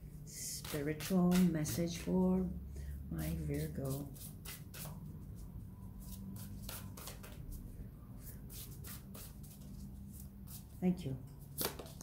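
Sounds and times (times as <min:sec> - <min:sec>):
cards shuffled by hand: 0:11.4 - 0:12.0.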